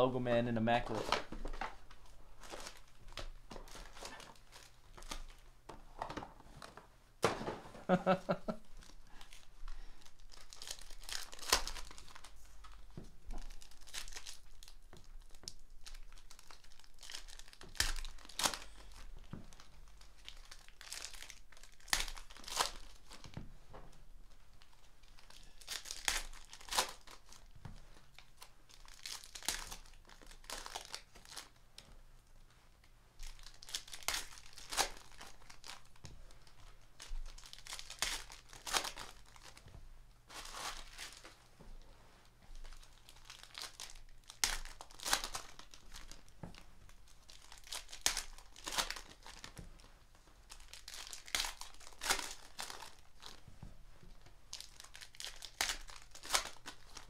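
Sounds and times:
foil wrappers tearing and crinkling: 8.8 - 23.4, 24.6 - 31.6, 33.2 - 39.6, 40.3 - 41.4, 42.6 - 53.4, 54.2 - 57.0.

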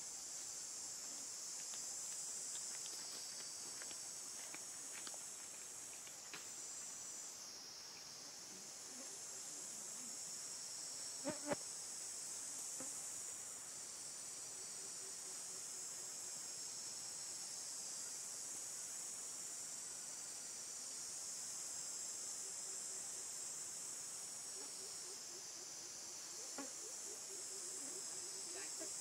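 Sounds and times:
high-pitched insect chorus: 0.0 - 29.0.

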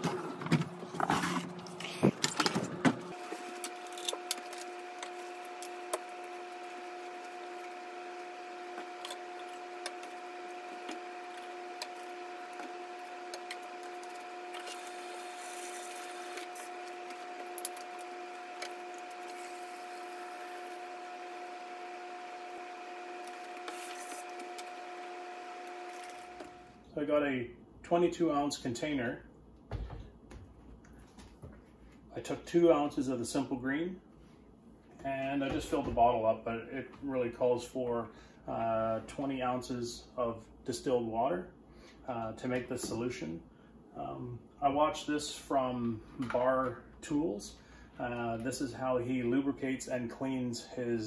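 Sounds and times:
steady hum: 0.0 - 27.8.

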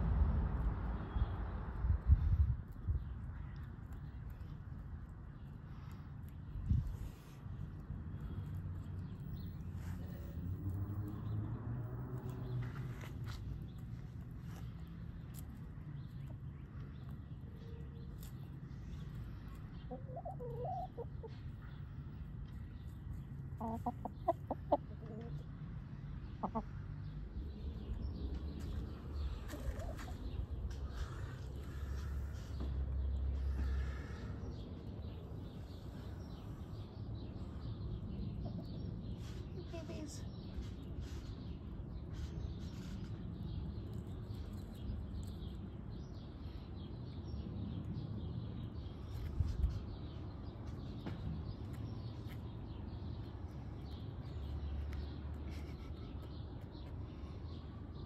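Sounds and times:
low outdoor rumble: 0.0 - 58.0
hen clucking: 19.9 - 21.4, 23.6 - 25.4, 26.4 - 26.8, 29.4 - 30.2.

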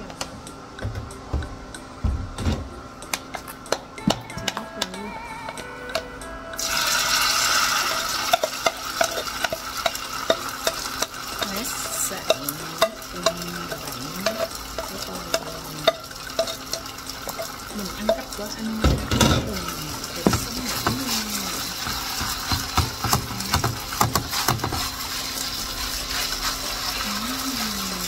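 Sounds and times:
batter sizzling in hot oil: 6.6 - 28.0
spoon clicking against bowl and pan: 8.2 - 18.4.

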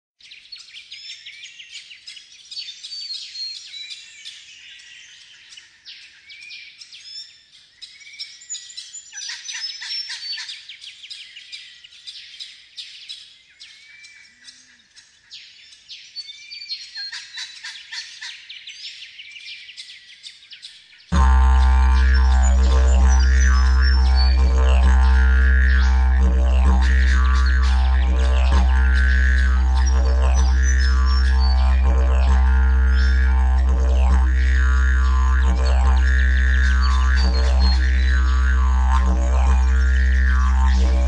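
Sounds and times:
birds chirping and trilling: 20.9 - 41.0.

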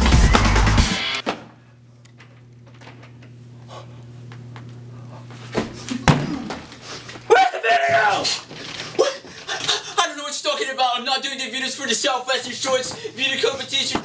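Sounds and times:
background music: 0.0 - 1.2
steady low hum: 1.5 - 7.3.

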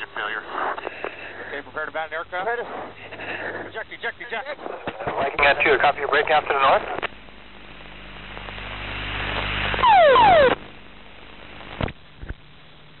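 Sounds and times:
faint steady hum: 0.0 - 13.0
falling warning tones: 9.8 - 10.6.

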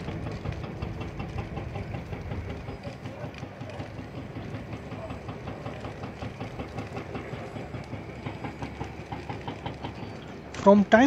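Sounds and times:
dry bushes burning and crackling: 0.0 - 11.0
low fire rumble: 0.0 - 11.0.

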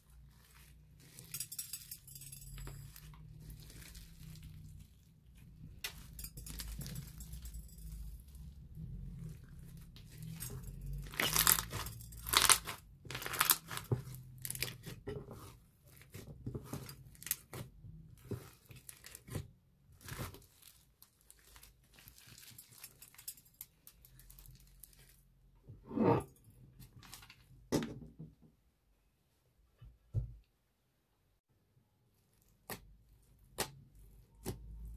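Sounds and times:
slime crackling and popping: 11.0 - 14.9.

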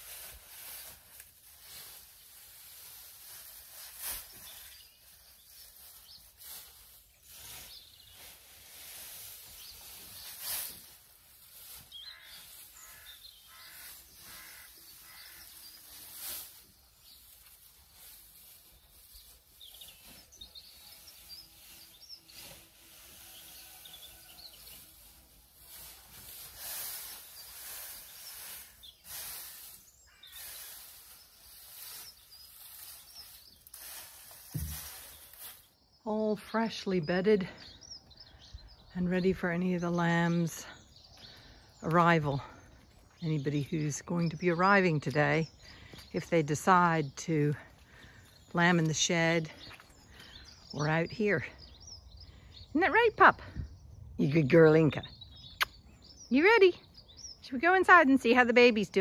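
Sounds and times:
straw rustling with pitchfork: 0.0 - 35.8
birds chirping: 3.5 - 59.0.

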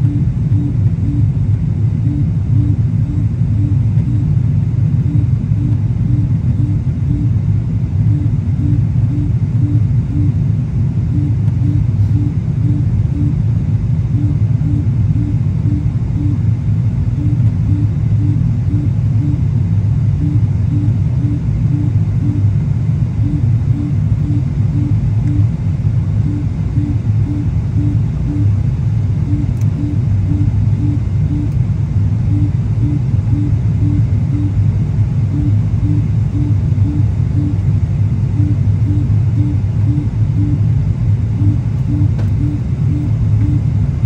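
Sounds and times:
airliner cabin rumble: 0.0 - 44.0
faint pulsing tone: 0.0 - 44.0.

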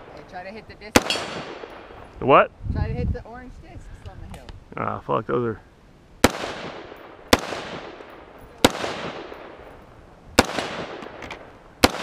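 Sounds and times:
gunshots with echo: 6.2 - 9.6, 10.4 - 11.2, 11.8 - 12.0.

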